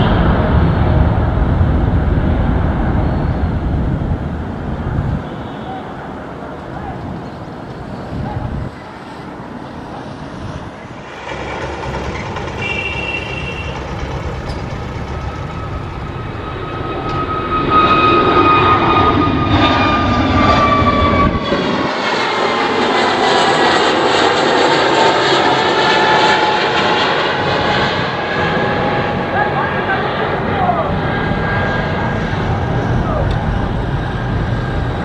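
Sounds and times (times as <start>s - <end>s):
jet engine roar: 0.0s - 35.0s
whining engine tones: 9.9s - 35.0s.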